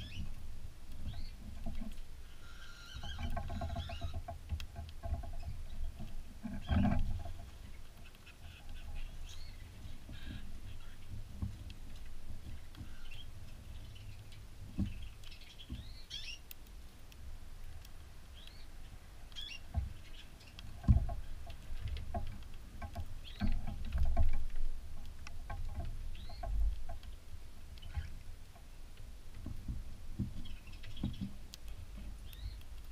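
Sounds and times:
bird chirps: 0.0 - 0.3, 8.0 - 11.1, 12.8 - 16.4, 19.4 - 20.6, 32.2 - 32.6
low bumps and knocks: 3.0 - 7.8, 20.7 - 27.2, 29.3 - 32.2.

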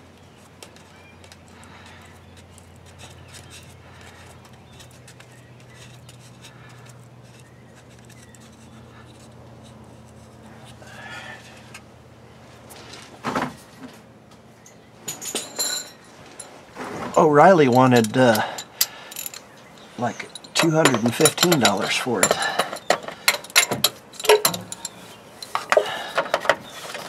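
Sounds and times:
steady low hum: 0.0 - 26.5
faint clicks and scrapes: 0.3 - 11.9
sharp metallic clunk: 20.3 - 24.9.

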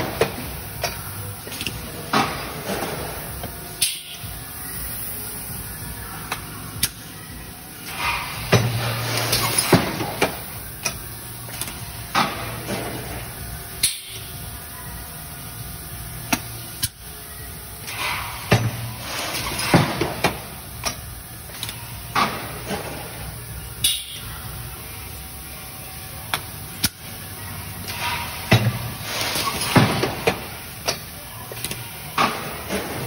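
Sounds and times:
machine low hum: 0.0 - 33.0.

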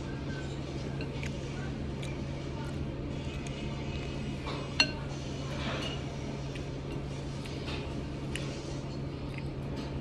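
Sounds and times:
spoon clinking on ceramic bowl: 4.6 - 5.0.

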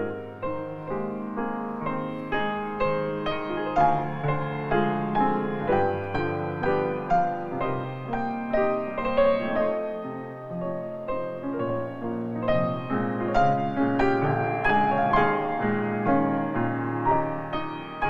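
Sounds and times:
gentle piano music: 0.0 - 18.0.

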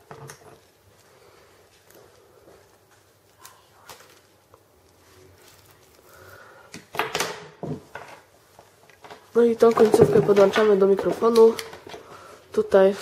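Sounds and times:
plastic packaging rustling: 0.3 - 6.7.

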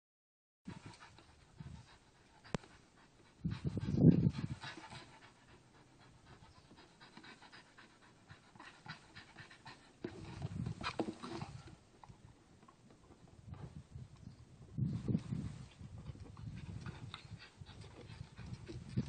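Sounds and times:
dog breathing hard: 0.7 - 11.6.

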